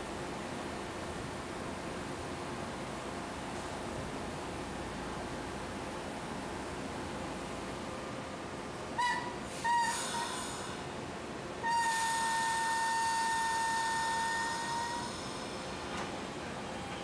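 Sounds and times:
train horn blasts: 9.0s - 10.7s, 11.6s - 15.3s.

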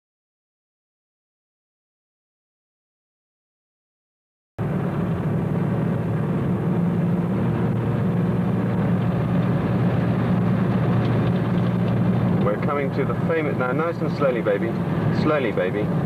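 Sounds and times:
vehicle engine and road noise: 4.6s - 16.0s.

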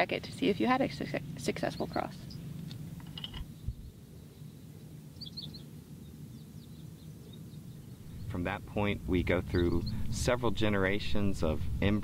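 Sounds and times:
faint bird chirps: 3.5s - 8.4s
steady low rumble: 5.8s - 12.0s.

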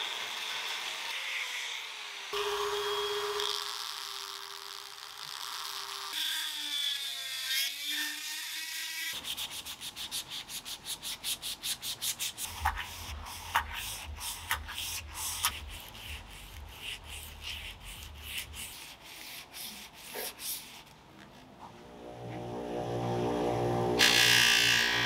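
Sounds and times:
sandpaper rubbing on metal: 9.1s - 20.9s
bench motor humming: 21.8s - 25.0s.

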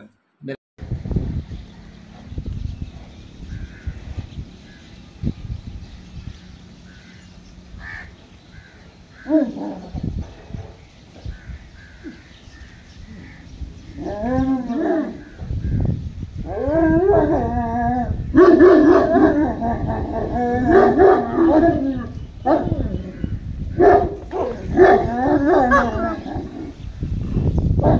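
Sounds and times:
dog whining and yelping: 24.4s - 26.7s.

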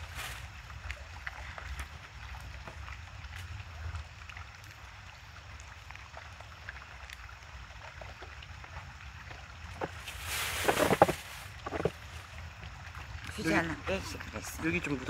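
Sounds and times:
wind rumbling on microphone: 0.0s - 5.8s, 8.1s - 15.0s
rustling scrape: 9.8s - 12.1s.

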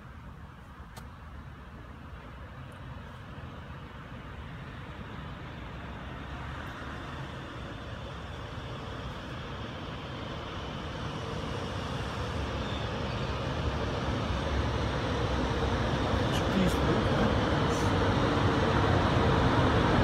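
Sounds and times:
train wheels rumbling on rail: 5.2s - 20.0s.

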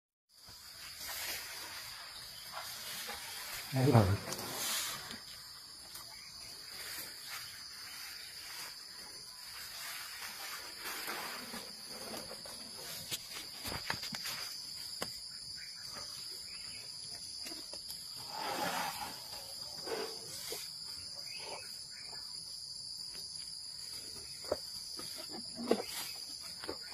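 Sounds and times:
insects chirring: 0.3s - 26.9s
crackles and rustles in grass: 0.4s - 19.1s.

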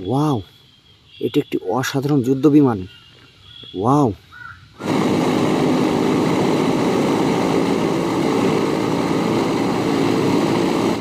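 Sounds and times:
propeller aircraft engines droning: 4.7s - 11.0s.

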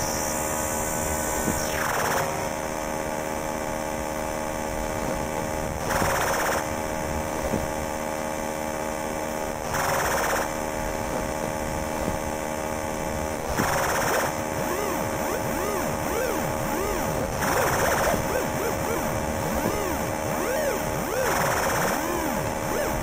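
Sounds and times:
buzzing electronic drone: 0.0s - 23.0s
pitch sweeps: 14.0s - 23.0s.

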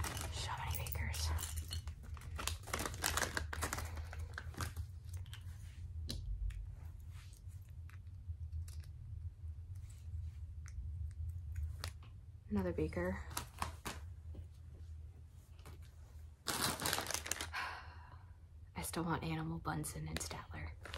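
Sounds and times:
steady low hum: 0.0s - 16.5s.

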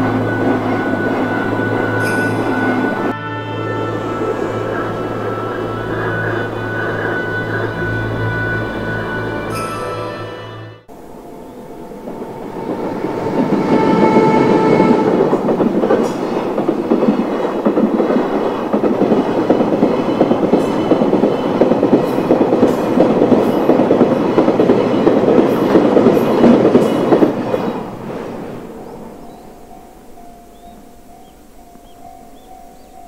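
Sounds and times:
train wheels rumbling on rails: 0.0s - 10.0s, 10.9s - 33.0s
clickety-clack of rail joints: 12.5s - 29.4s.

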